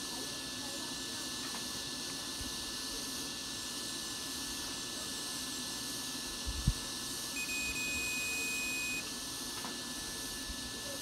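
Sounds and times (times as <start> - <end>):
multimeter continuity beep: 7.4 - 9.1.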